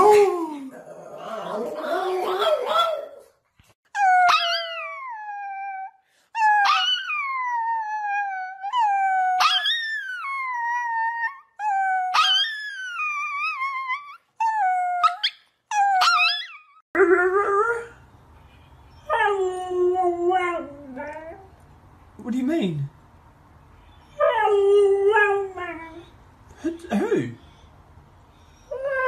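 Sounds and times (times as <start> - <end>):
small dog howling: 0.0 - 3.3, 4.0 - 11.4.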